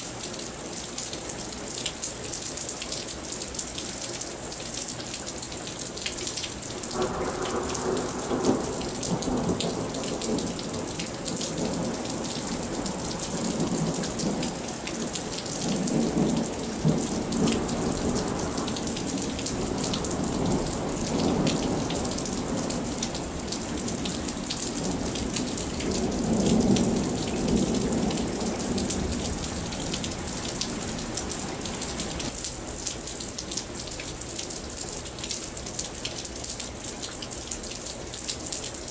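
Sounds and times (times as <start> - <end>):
steady rain: 0.0 - 38.9
low rolling thunder: 6.8 - 32.3.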